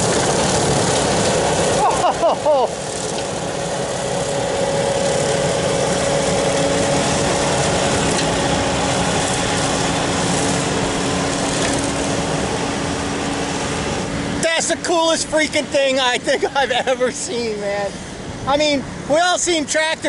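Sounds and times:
skid steer brush cutter humming: 0.0s - 18.3s.

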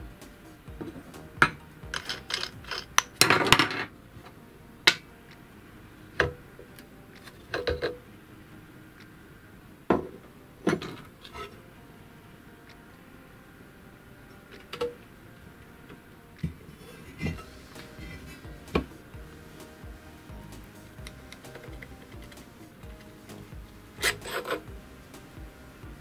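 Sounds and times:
metal parts clinking: 1.9s - 3.9s
rattling scrape: 1.9s - 3.9s, 24.0s - 24.7s.

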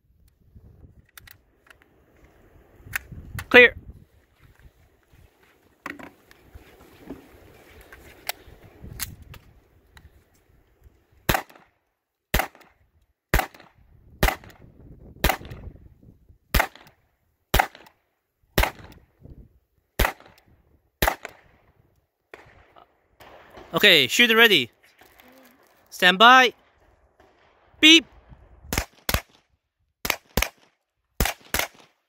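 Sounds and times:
gun handling clicks: 1.0s - 1.9s, 8.2s - 10.1s
pistol shots: 11.3s - 11.6s, 12.3s - 12.7s, 13.3s - 14.6s, 15.2s - 15.6s, 16.5s - 16.9s, 17.5s - 18.0s, 18.6s - 18.9s, 20.0s - 20.4s, 21.0s - 21.5s, 28.7s - 29.4s, 30.0s - 32.0s.

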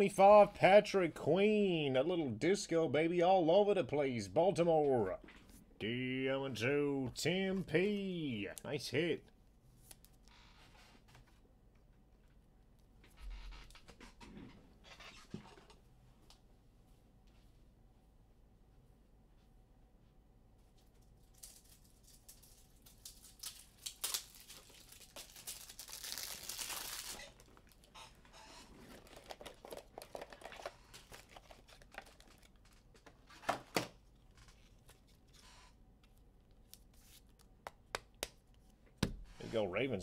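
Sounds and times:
foil pack tearing: 22.8s - 27.9s, 28.6s - 32.6s
cards clicking and rustling: 28.8s - 35.4s.

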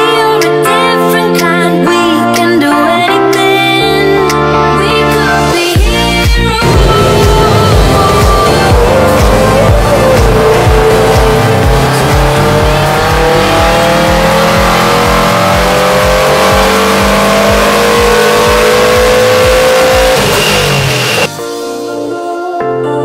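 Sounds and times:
music: 0.0s - 23.0s
car engine revving on dyno: 6.6s - 21.3s.

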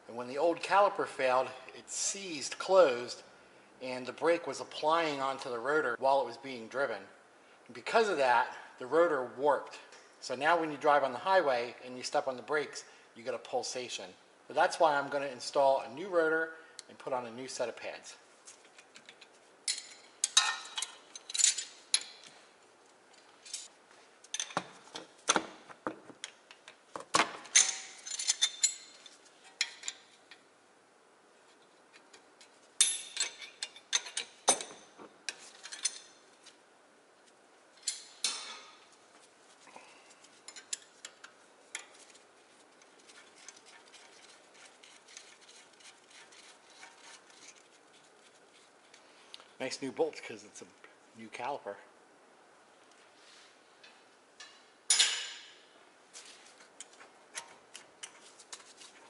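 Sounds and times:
hand tools clinking on metal: 19.7s - 22.3s, 27.5s - 30.1s, 32.8s - 36.2s, 54.4s - 55.6s.

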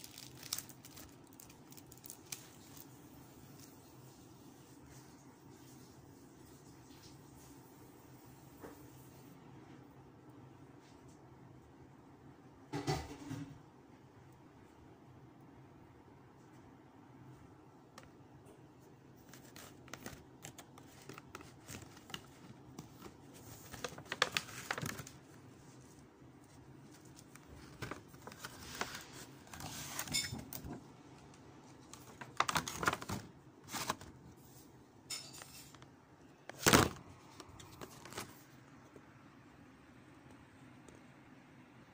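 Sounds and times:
plastic packaging crinkling: 0.0s - 3.9s, 19.2s - 30.8s, 31.8s - 34.5s, 36.5s - 38.5s.

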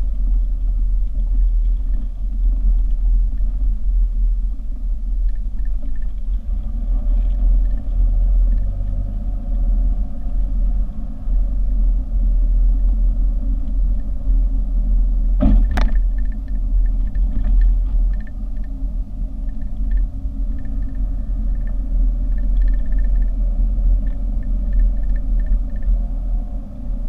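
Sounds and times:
car road and engine rumble: 0.0s - 27.0s.

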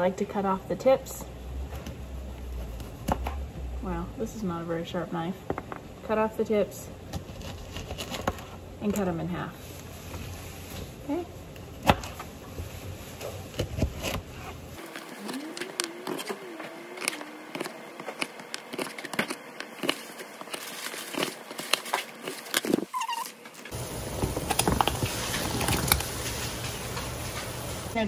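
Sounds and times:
water boiling in pot: 23.7s - 28.0s.

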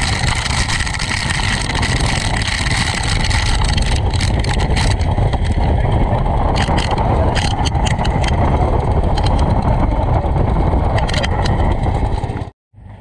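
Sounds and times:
falling rice grains pattering: 0.0s - 5.1s
electric fan wind rumble: 0.0s - 13.0s.

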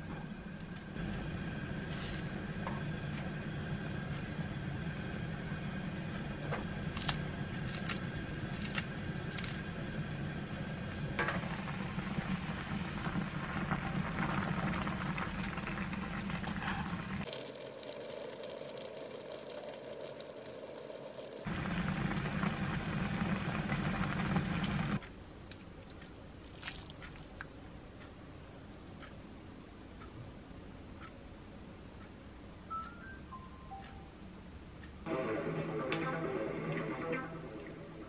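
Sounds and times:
gas stove low rumble: 0.0s - 17.3s, 18.7s - 25.0s
pot boiling with bubbling: 0.7s - 27.7s.

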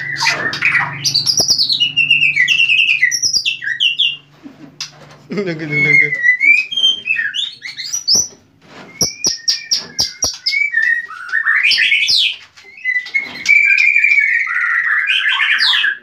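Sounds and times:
bird singing whistled phrases: 8.9s - 16.0s
bird sharp clicks: 10.0s - 10.5s.

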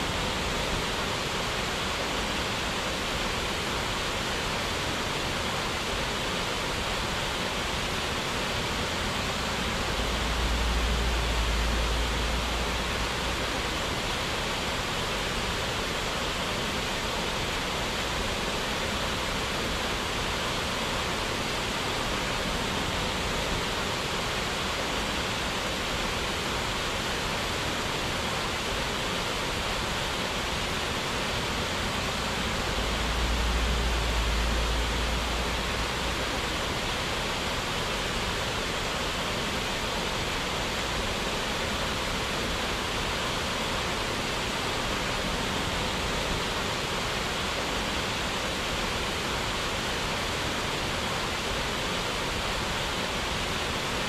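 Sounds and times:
waterfall rushing: 0.0s - 54.0s
low rumble: 9.7s - 13.4s, 32.5s - 36.2s.

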